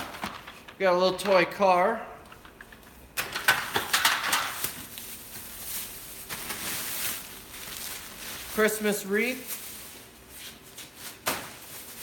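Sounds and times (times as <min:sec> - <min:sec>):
objects clicking and knocking: 0:00.0 - 0:01.5, 0:02.2 - 0:04.8
plastic bags rustling: 0:01.8 - 0:12.0.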